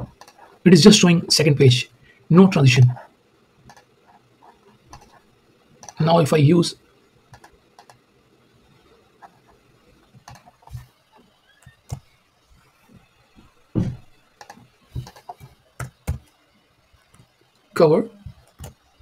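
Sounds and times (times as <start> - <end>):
computer mouse clicks: 0.0 - 0.5, 3.6 - 5.2, 5.8 - 6.0, 7.3 - 8.0, 10.1 - 12.2, 14.4 - 16.4, 18.3 - 19.0.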